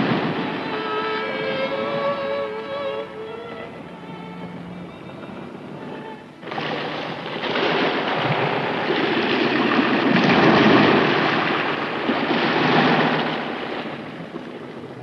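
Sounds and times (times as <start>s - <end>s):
sea waves washing over rocks: 0.0s - 1.2s, 5.8s - 15.0s.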